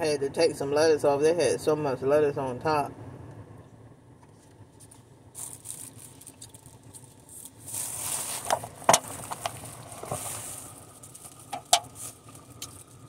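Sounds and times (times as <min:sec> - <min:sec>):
rustling: 0:04.3 - 0:13.0.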